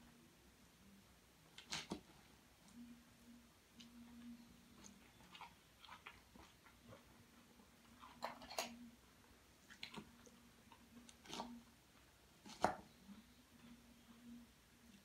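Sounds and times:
faint steady hum: 0.0s - 15.0s
chewing salad: 3.7s - 8.8s.

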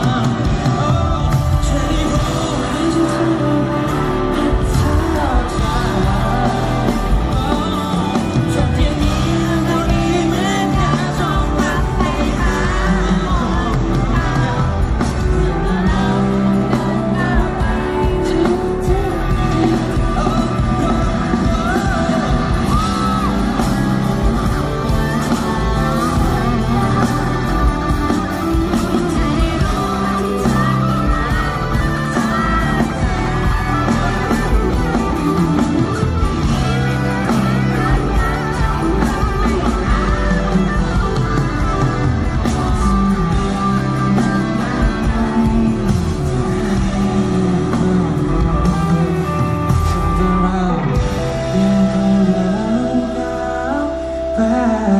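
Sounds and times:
live rock band playing: 0.0s - 54.9s
people singing: 0.0s - 54.9s.

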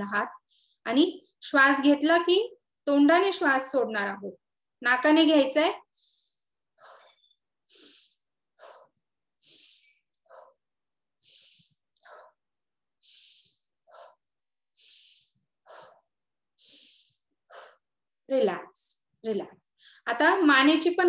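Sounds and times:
woman breathing: 5.8s - 18.0s, 19.7s - 20.1s.

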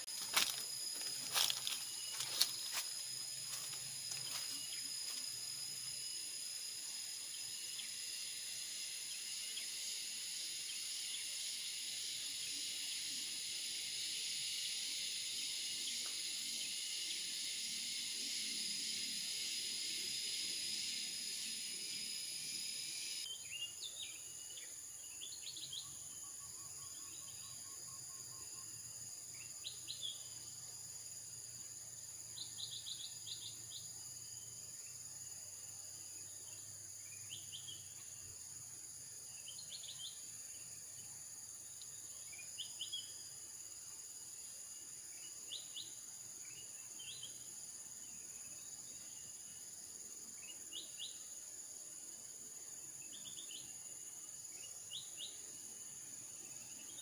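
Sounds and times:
high-pitched insect drone: 0.0s - 57.0s
bird chirping: 32.3s - 33.9s, 39.3s - 41.1s.

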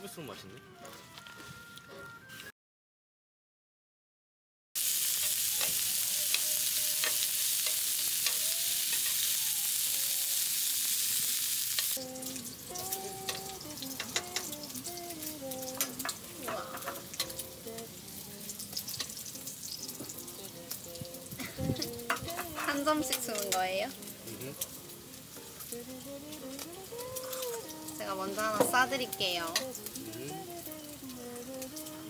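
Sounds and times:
meat sizzling on a grill: 4.8s - 32.0s.

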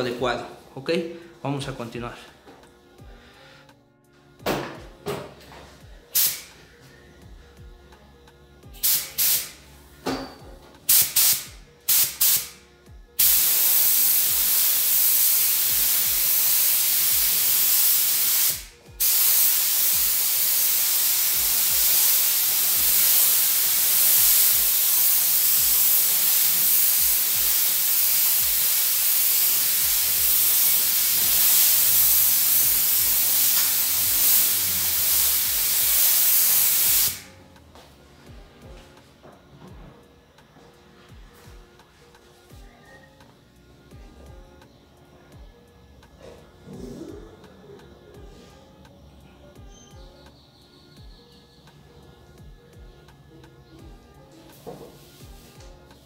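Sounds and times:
paint spray gun hissing: 6.1s - 6.5s, 8.8s - 9.6s, 10.9s - 12.6s, 13.2s - 37.3s.

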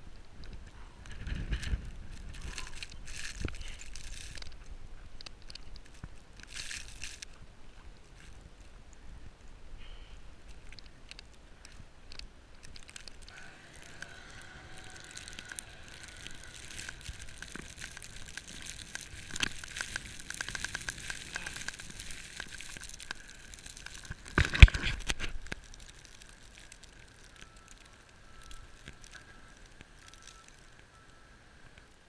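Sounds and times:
wind on microphone: 0.0s - 6.2s.

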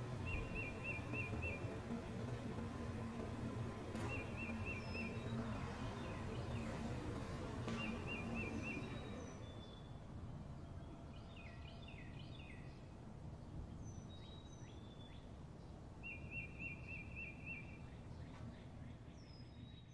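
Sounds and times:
low steady rumble: 0.0s - 11.2s
songbirds chirping and whistling: 0.0s - 19.9s.

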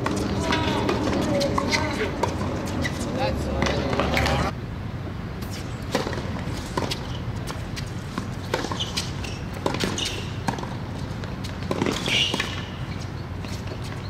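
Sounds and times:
tennis ball bouncing: 0.0s - 4.5s, 5.4s - 14.0s
racket striking tennis ball: 5.4s - 12.8s.

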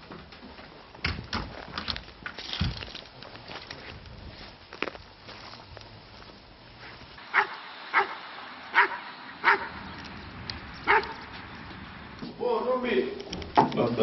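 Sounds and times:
dog barking: 7.3s - 9.8s, 10.8s - 11.2s.

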